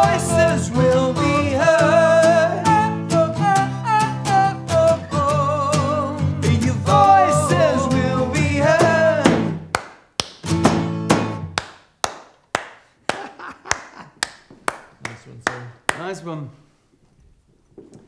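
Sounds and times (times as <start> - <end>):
man singing: 0.0 - 9.6
strummed acoustic guitar: 0.0 - 9.7, 10.4 - 11.6
sharp percussive taps: 9.2 - 12.8, 14.2 - 16.2.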